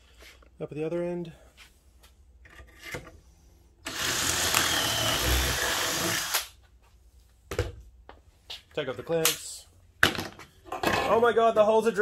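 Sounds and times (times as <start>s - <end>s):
power drill boring into wood: 3.8s - 6.5s.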